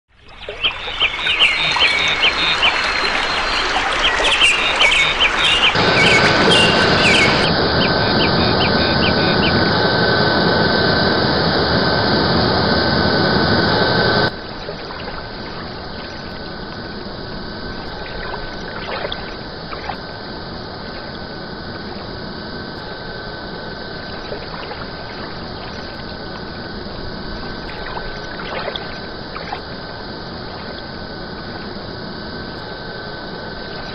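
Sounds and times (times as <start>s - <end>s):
running water: 0.1s - 9.5s, 13.7s - 33.9s
small birds chirping: 0.2s - 9.6s.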